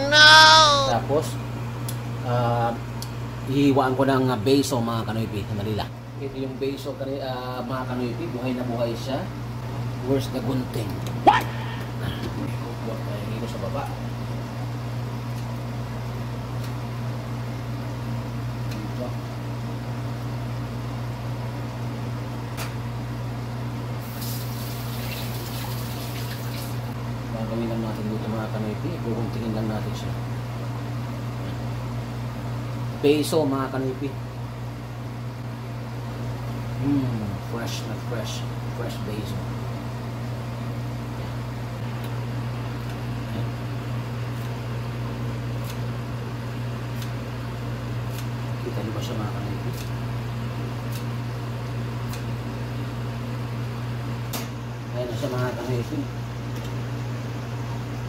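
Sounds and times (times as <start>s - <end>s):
low mechanical hum: 0.0s - 58.0s
kitchen tap running into sink: 24.1s - 26.9s.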